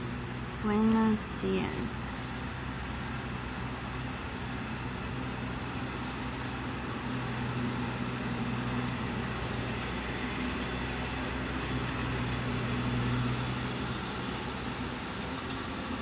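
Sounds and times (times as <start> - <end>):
low engine drone: 0.0 - 16.0.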